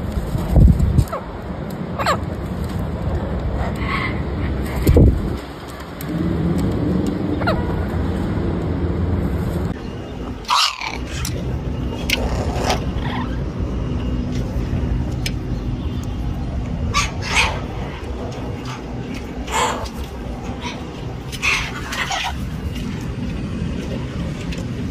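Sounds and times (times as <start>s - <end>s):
parrots harsh calls: 3.7s - 4.4s, 10.4s - 13.5s, 16.9s - 22.6s.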